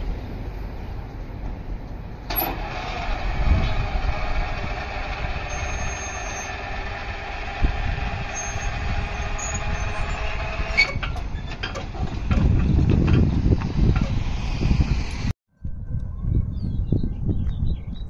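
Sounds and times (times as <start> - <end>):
crossing gate motor whining: 2.3 - 14.2.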